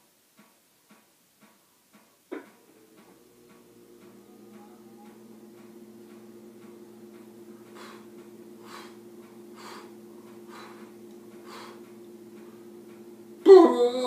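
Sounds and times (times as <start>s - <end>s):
low hum: 2.4s - 14.0s
breath puffs: 7.5s - 12.8s.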